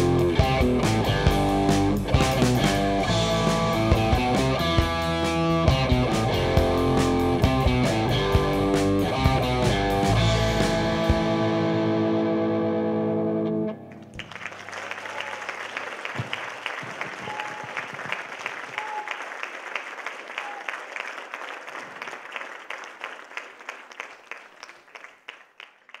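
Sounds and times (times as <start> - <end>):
rock band final chord: 0.0 - 13.8
audience applause: 13.9 - 26.0.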